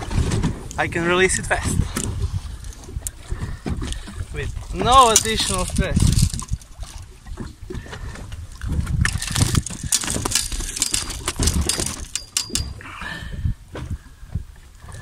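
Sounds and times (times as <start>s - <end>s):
fish flapping on boat deck: 1.6s - 12.8s.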